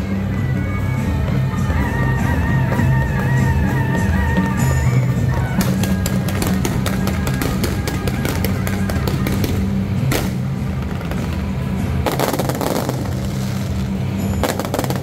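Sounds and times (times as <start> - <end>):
loud music with low beat: 0.0 - 15.0
fireworks crackling and popping: 5.2 - 15.0.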